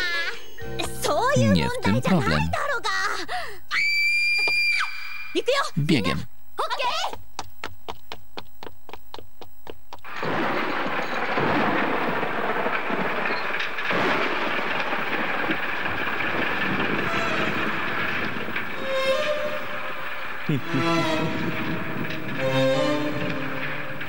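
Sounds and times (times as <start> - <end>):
cartoon running footsteps: 6.0 - 10.1
electric shock crackling: 10.0 - 24.0
rumble: 10.1 - 24.0.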